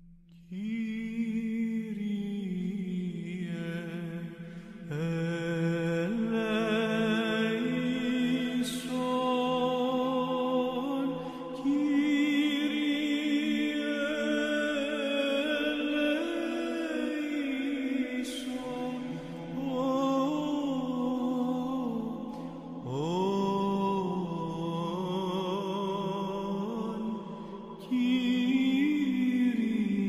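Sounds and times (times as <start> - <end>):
man singing chant: 0.5 - 30.0.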